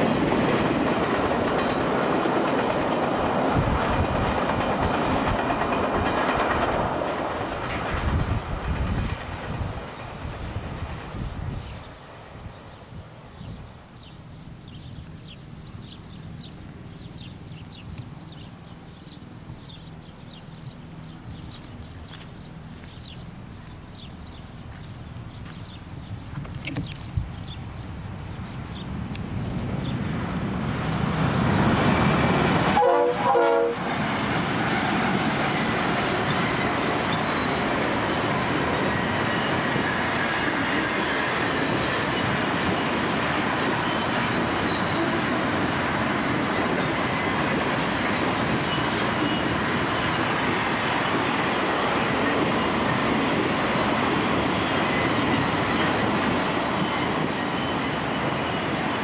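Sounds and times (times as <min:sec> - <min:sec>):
diesel locomotives passing: 0:00.0 - 0:59.0
rail cars rumbling on rails: 0:00.0 - 0:59.0.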